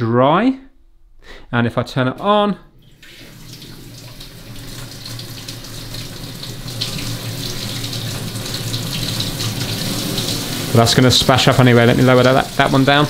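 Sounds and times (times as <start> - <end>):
tap water running into sink: 2.8 - 13.0.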